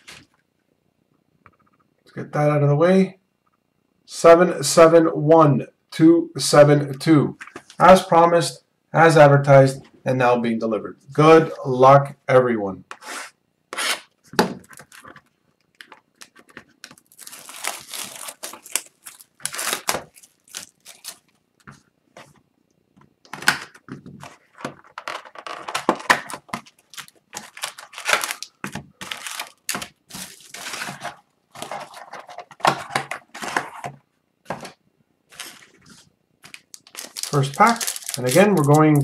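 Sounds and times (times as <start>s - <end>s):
shrink-wrap and cardboard tearing: 15.7s - 21.4s, 24.3s - 33.7s, 35.3s - 35.8s, 36.4s - 39.0s
foil packs rustling: 16.8s - 21.4s, 24.2s - 34.0s, 35.3s - 39.0s.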